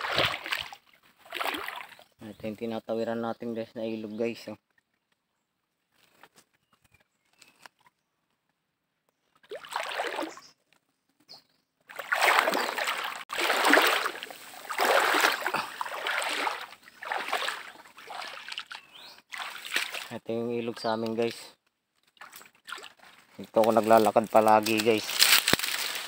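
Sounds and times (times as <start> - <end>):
person wading through water: 0.0 - 2.2, 9.4 - 10.5, 11.9 - 20.3, 22.0 - 26.0.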